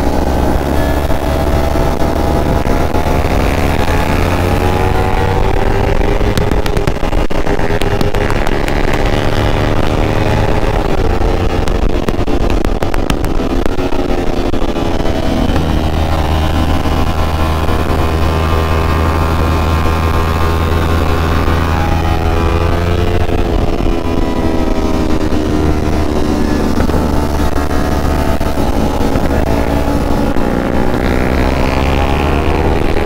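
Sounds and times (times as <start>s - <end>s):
motorcycle engine revving: 0.0s - 33.0s
wind on microphone: 0.0s - 33.0s
sharp clicks: 6.2s - 9.4s.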